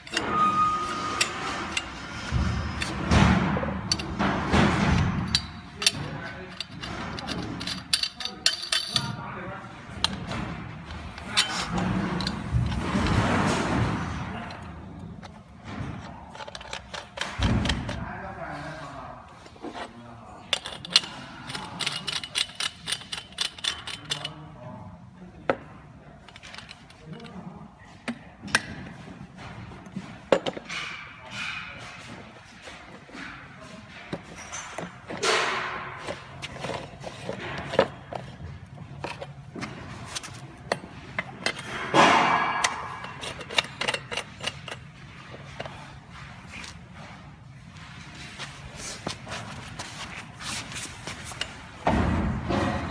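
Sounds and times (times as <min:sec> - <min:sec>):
metal parts clicking and clinking: 0:00.0 - 0:18.0, 0:20.4 - 0:24.5, 0:26.2 - 0:27.5, 0:30.3 - 0:47.2
metal fittings clicking: 0:20.5 - 0:24.4, 0:42.6 - 0:44.8.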